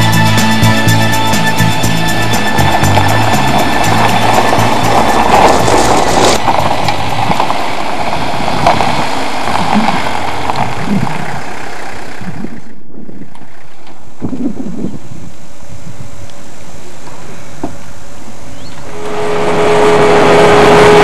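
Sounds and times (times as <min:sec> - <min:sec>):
van engine running: 0:00.0 - 0:15.8
tyres on gravel: 0:00.0 - 0:21.0.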